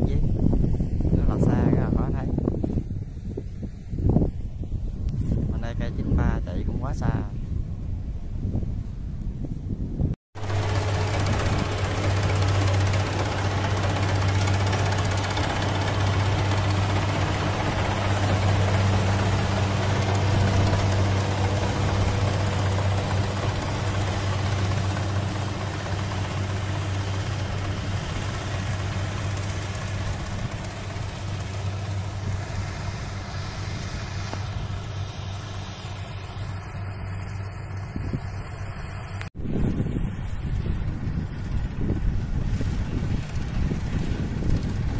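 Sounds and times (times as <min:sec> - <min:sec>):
machinery clatter: 0:10.4 - 0:39.3
diesel engine running under load: 0:10.4 - 0:44.9.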